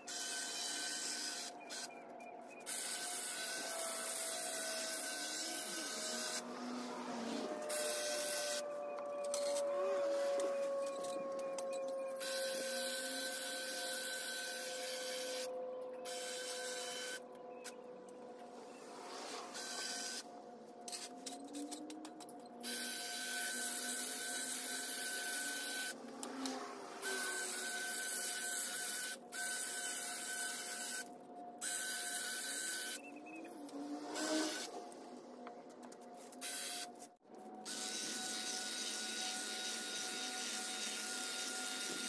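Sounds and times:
electric hedge trimmer buzzing: 2.8 - 8.6, 37.7 - 42.0.

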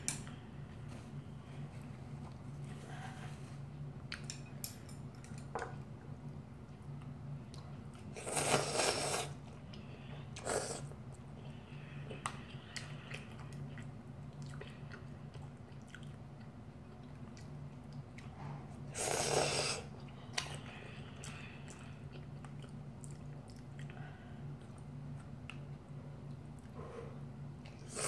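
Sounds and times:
slurping noodles: 8.2 - 9.4, 18.9 - 19.9
boy chewing noodles: 12.2 - 26.8.

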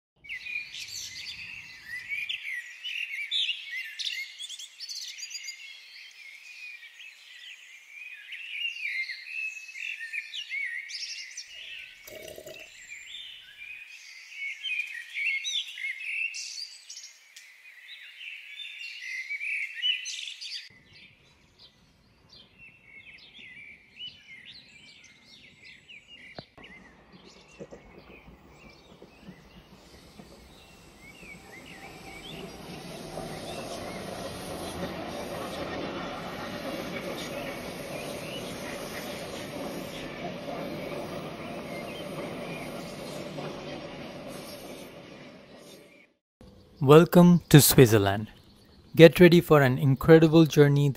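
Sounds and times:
songbirds chirping and singing: 0.3 - 50.9
low outdoor background: 20.7 - 50.9.

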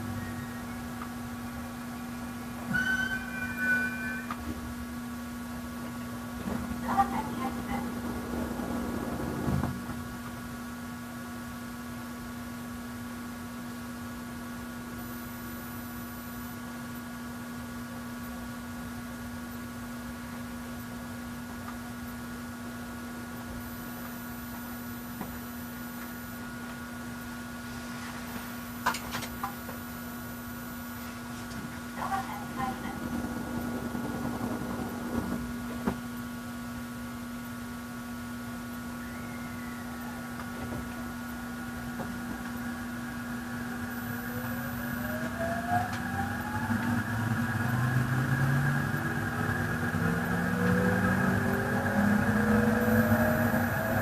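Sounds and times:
faint high steady tones: 0.0 - 4.8, 38.7 - 46.6
electric train humming: 0.0 - 16.7, 18.1 - 54.0.

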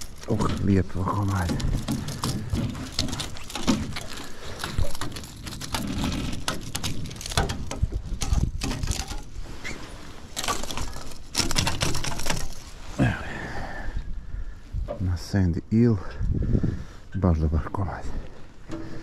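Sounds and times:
footsteps on wooden boards: 0.0 - 9.3
fish thrashing on wooden boards: 0.0 - 12.9, 18.6 - 19.0
clothing rustle: 0.0 - 13.1.

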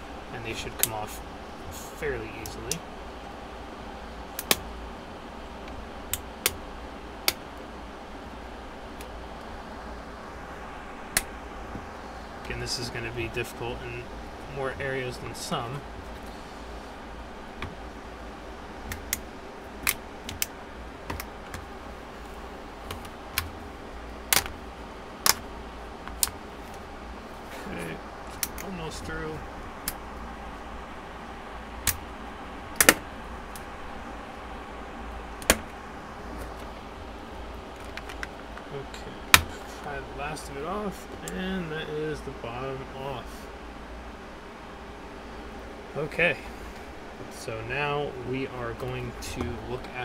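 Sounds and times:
steady low hum: 0.0 - 50.0
plastic clips snapping loose: 24.3 - 24.6.

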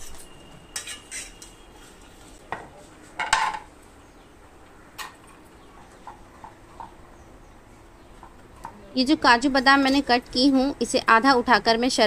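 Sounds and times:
utensils and dishes clinking: 0.0 - 2.1.

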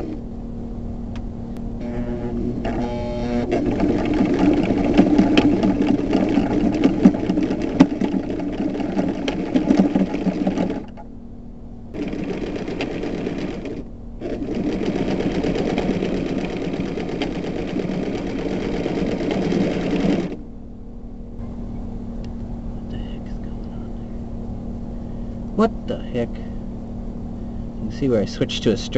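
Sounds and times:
sewing machine stitching: 1.8 - 11.0, 12.0 - 20.4.

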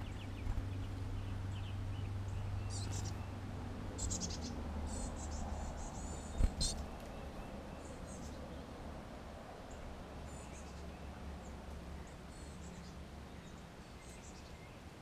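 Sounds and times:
songbirds chipping and twittering: 0.0 - 15.0
steady low hum: 0.0 - 15.0.

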